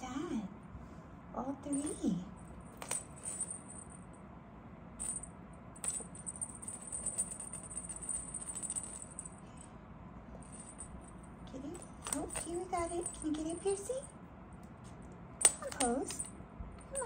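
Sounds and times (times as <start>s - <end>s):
cat toy jingling rattle: 5.8s - 9.6s, 10.4s - 14.1s.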